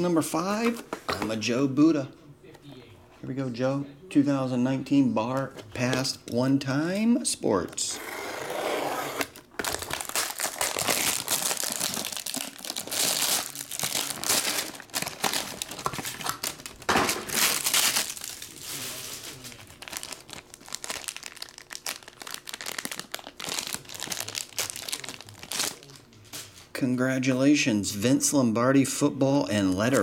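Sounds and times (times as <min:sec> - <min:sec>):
plastic wrapping crinkling and tearing: 0:09.4 - 0:26.5.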